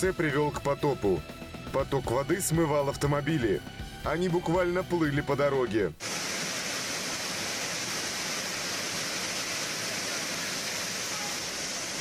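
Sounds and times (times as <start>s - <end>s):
floodwater rushing: 6.0s - 12.0s.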